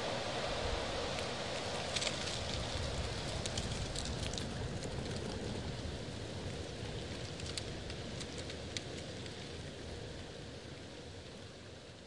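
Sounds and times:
wind rustling through leaves: 0.0s - 12.0s.

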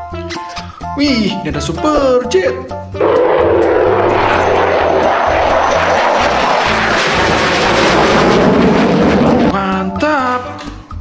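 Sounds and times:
fighter jet flying past: 3.0s - 9.6s.

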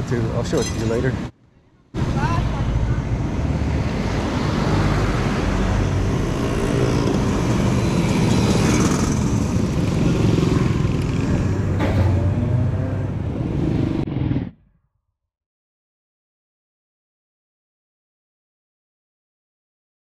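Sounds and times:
motorcycle engines passing: 2.2s - 14.4s.

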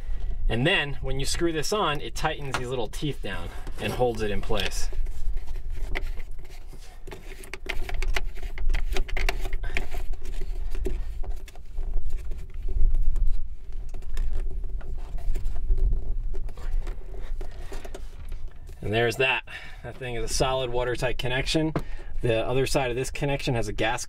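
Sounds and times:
plastic threads clicking and scraping: 3.6s - 12.6s.

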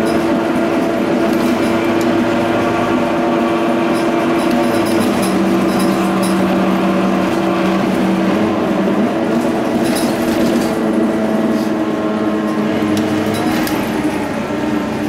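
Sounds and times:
bus diesel engine drone: 0.0s - 15.0s
short rattles: 3.9s - 6.6s.

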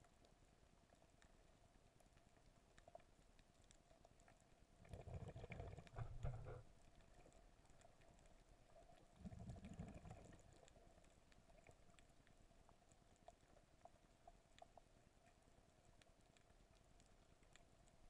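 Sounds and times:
faint steady hum: 0.0s - 18.0s
low muffled underwater bursts: 5.8s - 6.6s.

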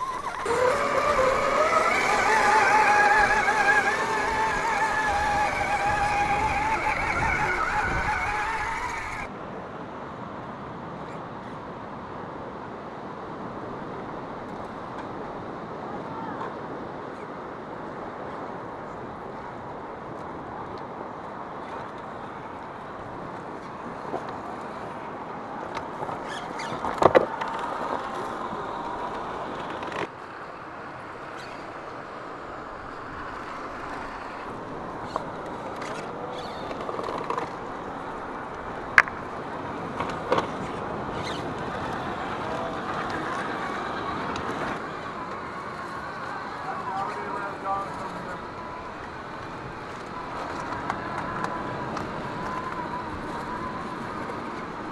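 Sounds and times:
electric motor whining: 0.0s - 9.3s.

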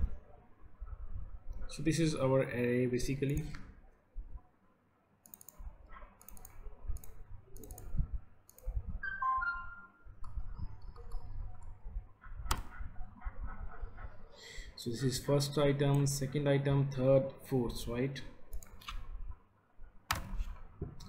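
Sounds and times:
mouse clicking: 5.2s - 5.6s, 6.2s - 8.8s, 12.4s - 12.8s
keyboard typing: 5.2s - 11.8s.

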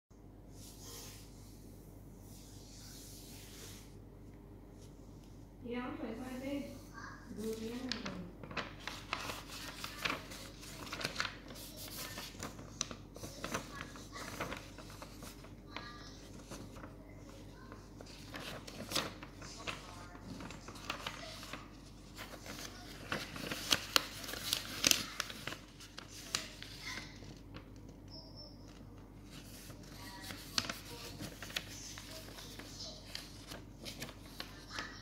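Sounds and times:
paper rustling and crackling: 7.3s - 28.0s, 28.7s - 35.0s.

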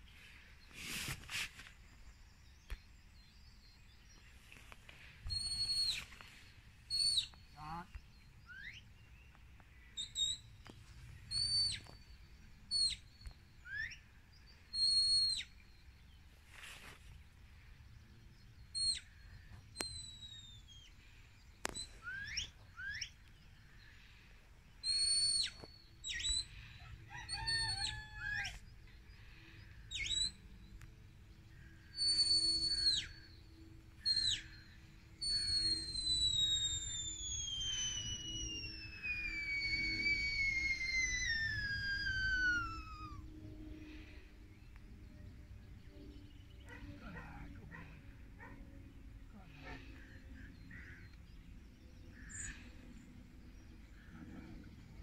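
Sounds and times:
short sharp high whistles: 35.2s - 43.2s.

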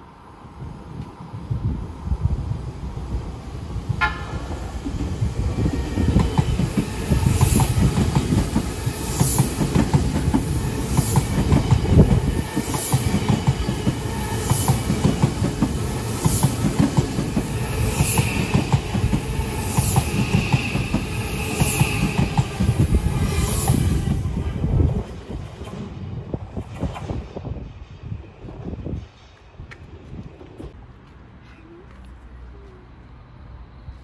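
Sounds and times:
train wheels rumbling on rails: 0.6s - 30.9s
clickety-clack over rail joints: 6.0s - 21.0s, 24.4s - 27.7s.

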